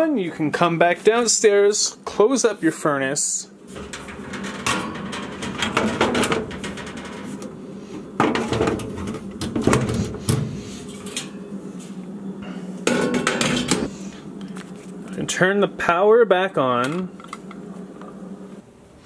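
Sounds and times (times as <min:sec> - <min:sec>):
metal panel clattering and knocking: 0:03.7 - 0:07.6, 0:08.2 - 0:10.5.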